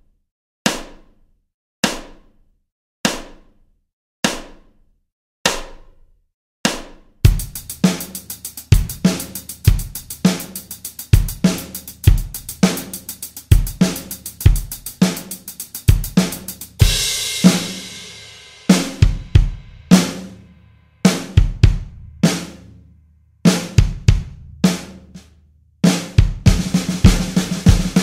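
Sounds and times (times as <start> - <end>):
electronic drum kit beat: 7.2 - 20.4, 21.0 - 22.6, 25.9 - 28.0
double kick drum strokes: 7.3 - 20.3, 21.0 - 22.6, 26.2 - 28.0.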